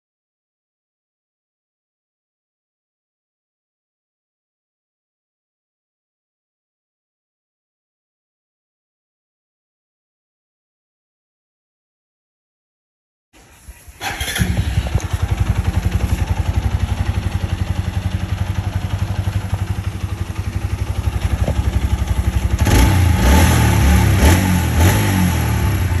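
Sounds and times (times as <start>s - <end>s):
motorcycle engine idling and revving: 13.4s - 26.0s.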